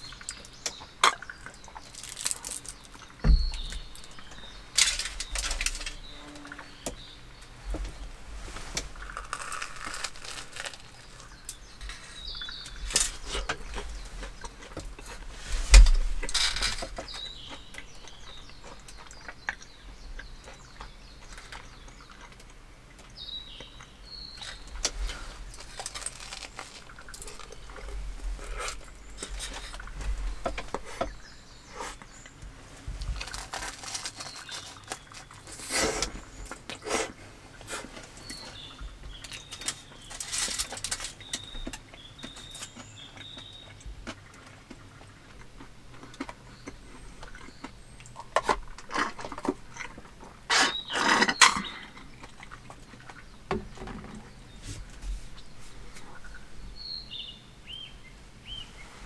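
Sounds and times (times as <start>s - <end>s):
crunchy chewing: 0.0s - 53.4s
small birds chirping: 0.0s - 59.0s
aluminium foil crinkling: 1.4s - 6.0s, 8.9s - 12.2s, 24.4s - 29.9s, 33.0s - 35.7s, 39.2s - 41.7s.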